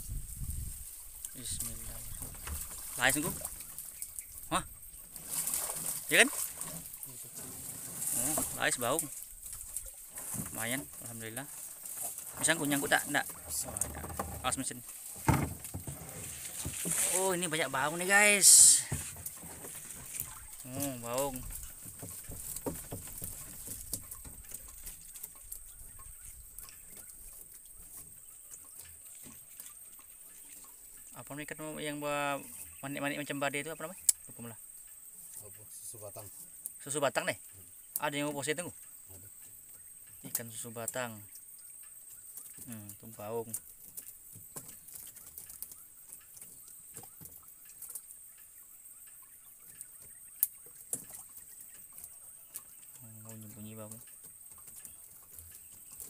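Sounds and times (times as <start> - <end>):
water trickling: 0.0 - 56.0
steady high hiss: 14.5 - 21.4.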